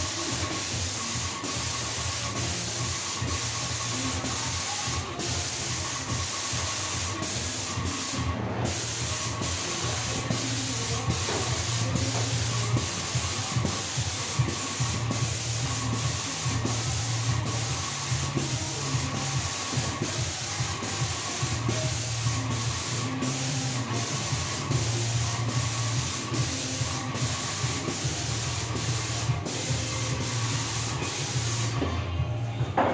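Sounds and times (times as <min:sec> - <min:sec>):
paint spraying hiss: 0:00.0 - 0:31.8.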